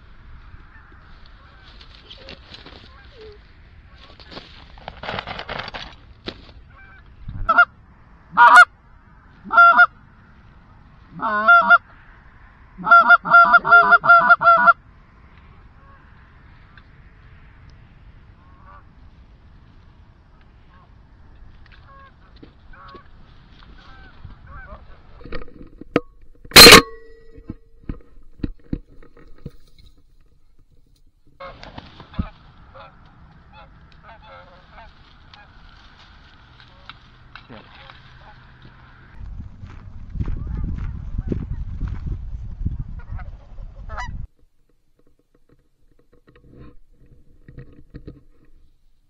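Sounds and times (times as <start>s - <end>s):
geese honking: 0.6s - 4.3s, 6.6s - 8.7s, 9.4s - 10.1s, 10.8s - 12.0s, 12.8s - 14.8s, 15.4s - 16.8s, 18.4s - 19.0s, 20.3s - 21.0s, 21.7s - 25.2s, 26.6s - 26.9s, 31.4s - 39.2s, 43.0s - 44.2s
wind rumble on microphone: 6.0s - 11.2s, 13.5s - 26.0s, 27.8s - 44.4s.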